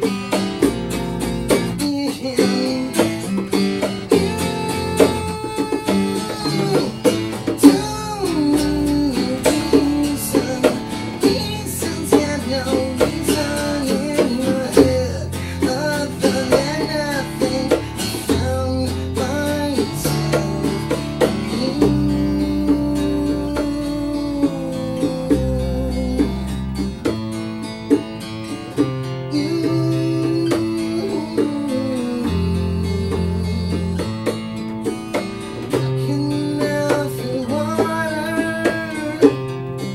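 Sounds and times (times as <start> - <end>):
bongos: 0.0 - 39.9
sliding lead melody: 0.0 - 39.9
strummed acoustic guitar: 0.0 - 39.9
low bass line: 6.1 - 28.2.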